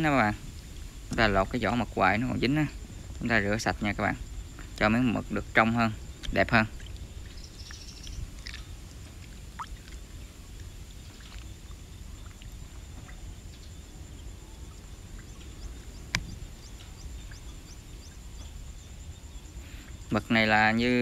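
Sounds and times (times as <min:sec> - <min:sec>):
steady low rumble: 0:00.0 - 0:21.0
water splashing in a bowl: 0:08.2 - 0:13.4.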